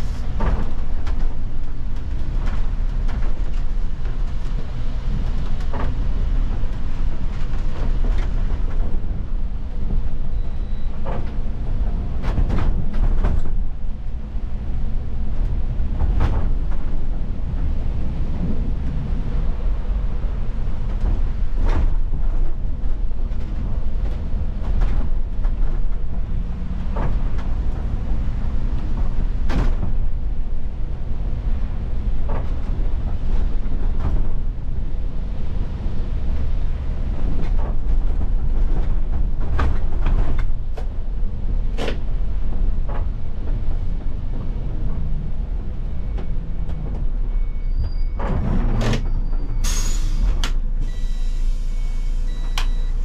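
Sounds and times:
bus engine and tyre rumble: 0:00.0 - 0:53.0
air hiss: 0:49.6 - 0:52.1
short beeps: 0:50.8 - 0:53.0.

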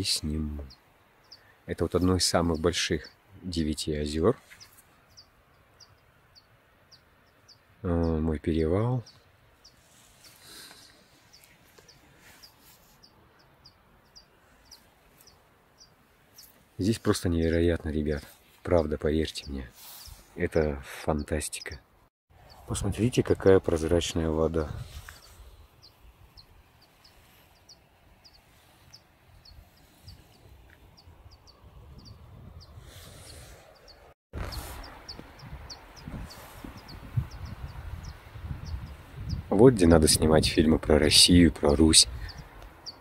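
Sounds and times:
soft rush of noise: 0:00.0 - 0:20.8, 0:22.4 - 0:31.9
small bird chirping: 0:00.0 - 0:43.0.

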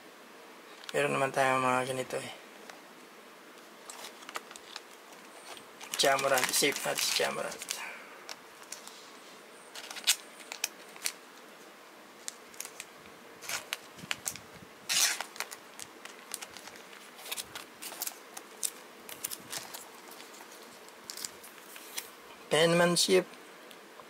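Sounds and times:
trading cards being handled: 0:03.8 - 0:11.2, 0:12.2 - 0:22.2
card sliding into plastic sleeve: 0:09.7 - 0:11.2, 0:12.2 - 0:22.1.

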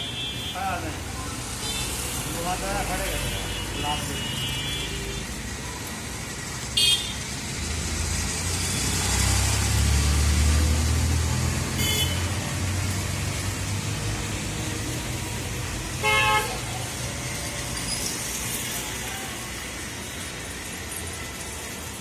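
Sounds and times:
passing vehicle rumble: 0:07.3 - 0:21.6.

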